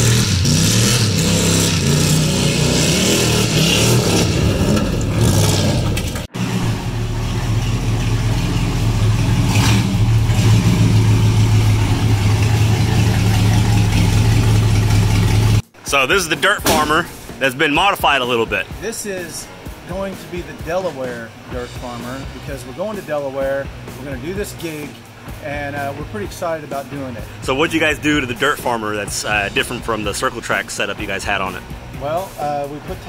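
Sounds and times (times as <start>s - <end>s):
engine idling loudly: 0.0s - 15.6s
truck engine revving: 0.0s - 17.5s, 27.2s - 32.0s.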